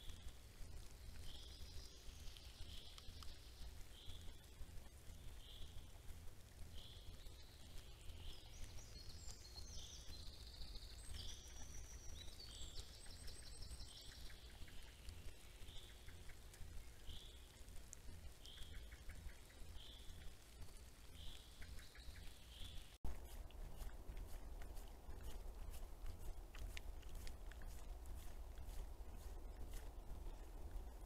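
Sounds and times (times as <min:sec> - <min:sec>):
faint low rumble: 0:00.0 - 0:31.0
bird trilling song: 0:06.7 - 0:20.4.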